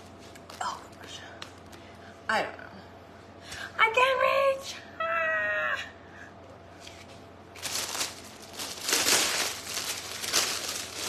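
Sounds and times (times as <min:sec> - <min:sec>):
plastic bag crinkling: 0:07.6 - 0:11.0.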